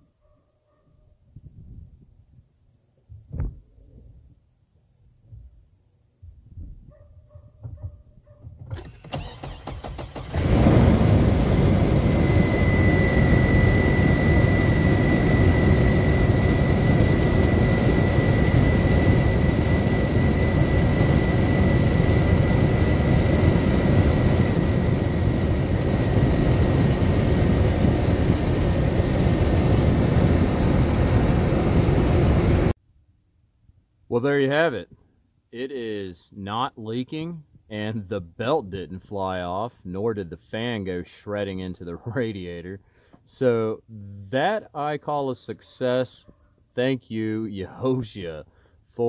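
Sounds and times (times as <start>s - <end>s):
engine starter cranking: 8.7s - 10.8s
thin steady whine: 10.3s - 32.7s.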